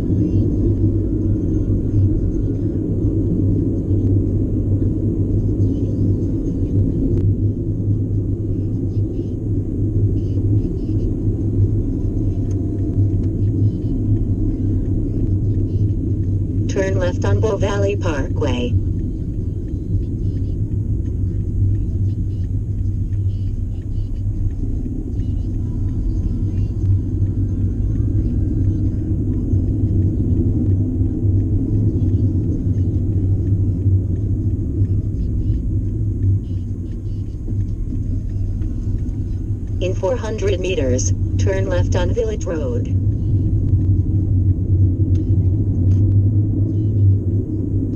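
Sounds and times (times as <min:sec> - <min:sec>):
car road and engine rumble: 0:00.0 - 0:47.9.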